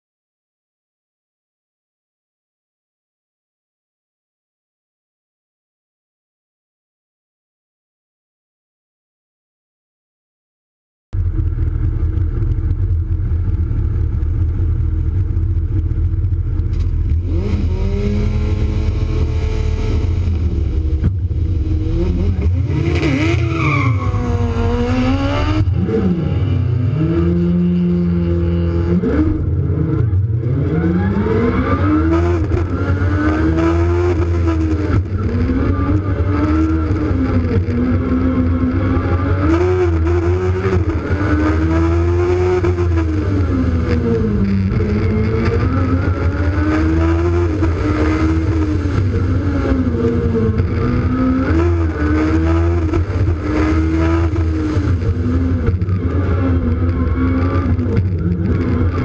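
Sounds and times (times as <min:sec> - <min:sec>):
heavy low drone: 0:11.2 - 0:23.0
race car engine revving: 0:11.2 - 0:59.0.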